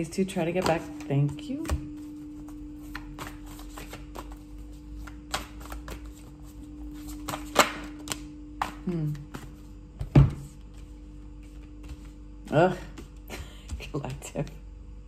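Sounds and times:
cards being shuffled: 0.5 - 9.7.

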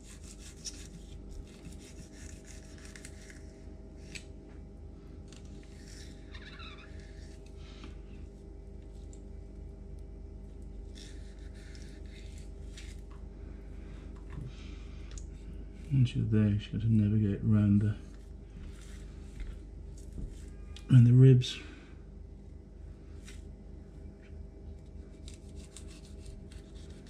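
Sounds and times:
knife scraping along fish bone: 0.0 - 3.4, 10.8 - 13.0, 25.0 - 27.0
low background hum: 0.0 - 27.0.

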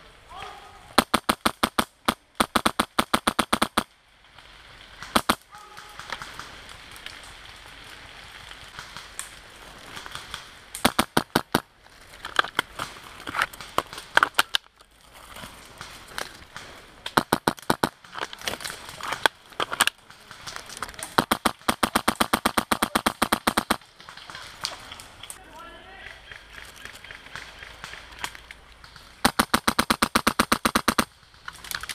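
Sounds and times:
airsoft guns firing bursts: 1.0 - 3.9, 5.0 - 6.6, 10.0 - 11.6, 16.5 - 18.2, 20.0 - 24.6, 27.2 - 31.1.

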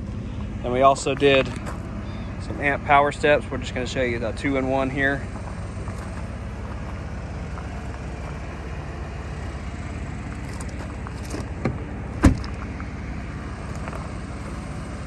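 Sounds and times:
truck engine idling: 0.0 - 15.0
truck door shutting: 10.4 - 12.6.

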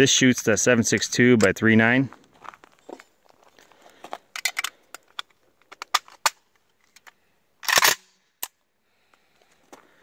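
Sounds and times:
rifle parts clicking: 4.3 - 8.6.

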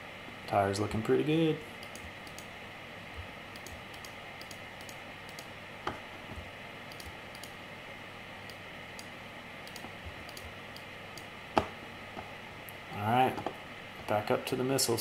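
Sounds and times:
low room hiss: 0.0 - 15.0
computer mouse and keyboard clicks: 1.8 - 2.5, 3.5 - 7.6, 9.7 - 11.7.

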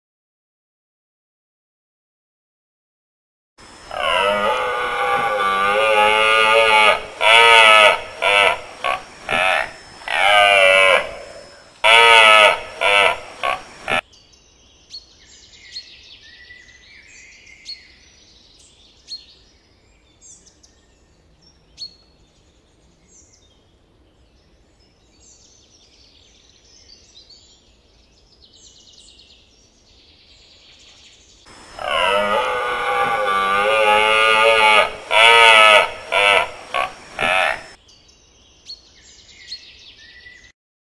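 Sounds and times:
deer stag roaring: 3.9 - 14.0, 31.5 - 37.8.

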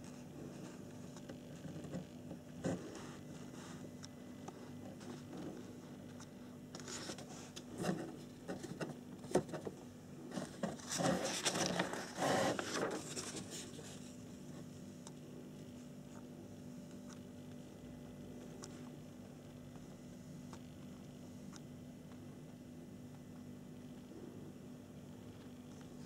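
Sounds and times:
faint steady hum: 0.0 - 26.0
paper pages rustling: 5.0 - 9.6, 10.3 - 14.7.

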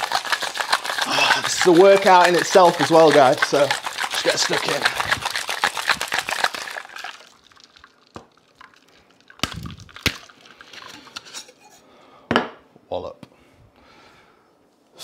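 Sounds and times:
shaker knocks and clinks: 0.0 - 7.0
cocktail shaker rattling: 0.0 - 11.2.

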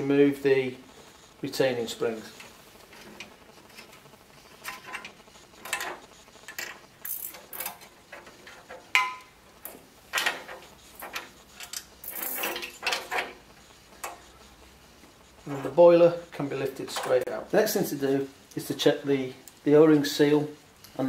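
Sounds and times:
metal springs clicking and scraping: 4.6 - 13.4.

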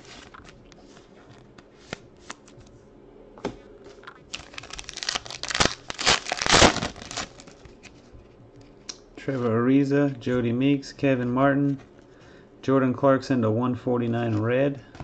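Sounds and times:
foil wrapper tearing and crinkling: 4.3 - 7.6.

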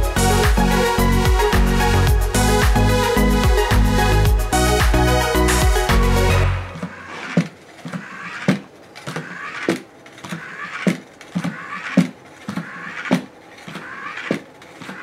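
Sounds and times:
small motor whirring: 6.8 - 15.0.

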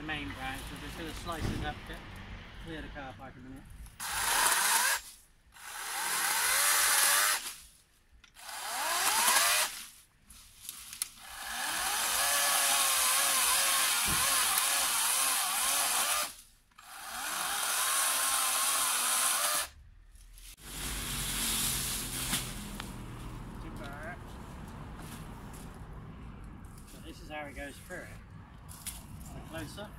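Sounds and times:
electric chainsaw cutting branches: 4.0 - 7.6, 8.3 - 9.8, 11.0 - 19.8, 20.6 - 22.9.

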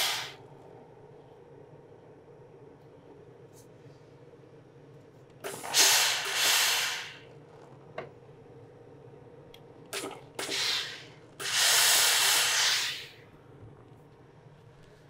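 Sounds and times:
steam iron hissing: 0.0 - 0.4, 5.4 - 7.2, 10.4 - 13.2.

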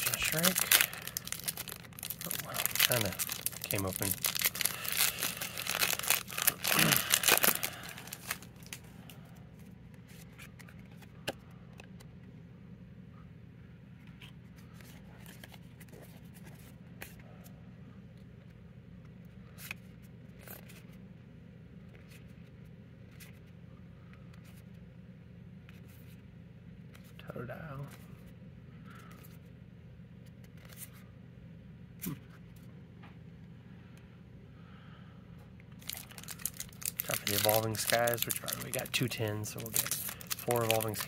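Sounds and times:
foil wrapper crinkling and tearing: 0.0 - 8.9, 35.8 - 41.0
low steady hum: 0.0 - 41.0.

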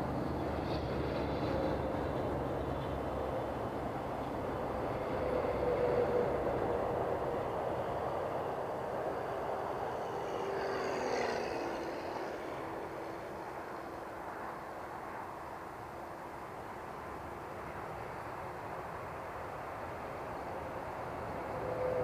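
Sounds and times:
model airplane motor drone: 7.7 - 14.7.

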